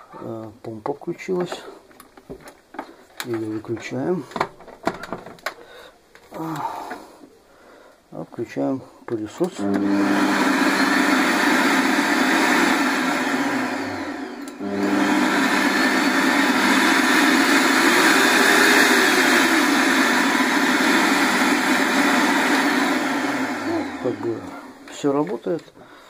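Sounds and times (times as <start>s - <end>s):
vacuum cleaner motor running: 9.4s - 25.6s.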